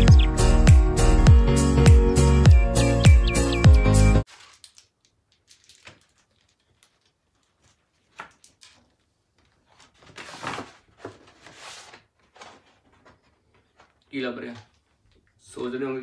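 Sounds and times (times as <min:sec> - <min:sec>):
paper envelope rustling: 0:04.3 - 0:14.0.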